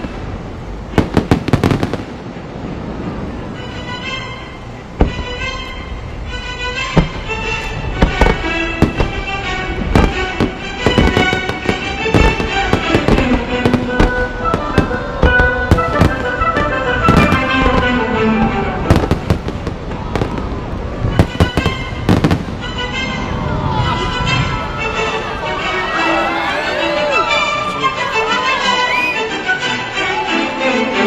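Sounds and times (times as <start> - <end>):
fireworks bangs and crackles: 0.0 - 3.6, 5.0 - 5.5, 7.0 - 24.6
music: 3.5 - 19.7, 21.0 - 31.0.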